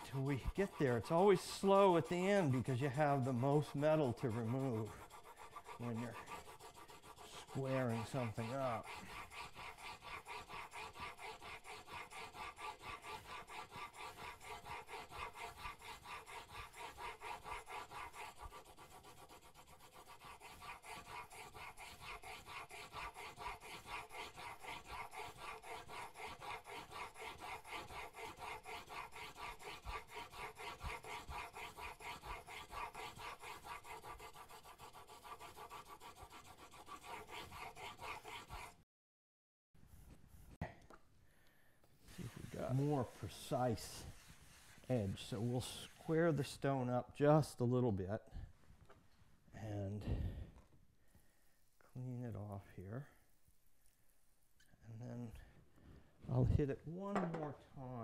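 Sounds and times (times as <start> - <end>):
chisel grinding on sharpening stone: 0.0 - 38.8.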